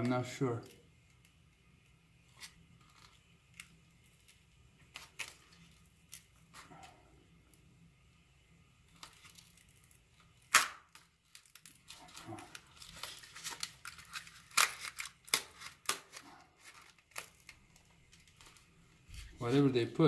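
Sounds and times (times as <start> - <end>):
foam crackling and tearing: 2.2 - 7.0, 8.8 - 19.8
foam snapping: 8.9 - 18.4.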